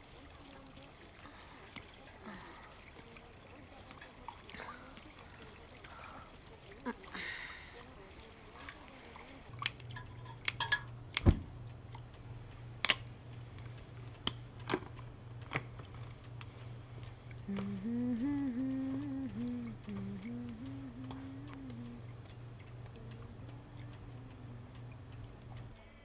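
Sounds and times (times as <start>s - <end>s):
steady low hum: 0.0s - 26.0s
sharp clicks and knocks: 9.6s - 12.0s, 12.8s - 16.5s
woman humming: 17.4s - 26.0s.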